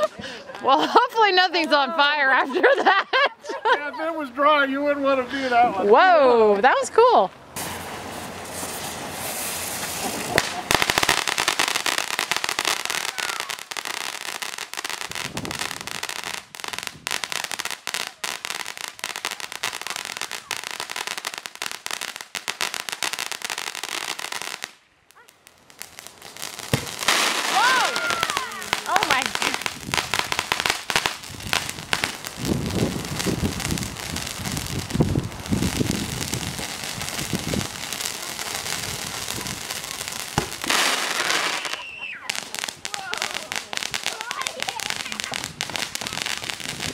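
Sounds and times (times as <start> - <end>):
fireworks crackling: 0.0 - 2.9, 5.4 - 46.9
sharp pop: 26.7 - 27.3, 40.4 - 40.8.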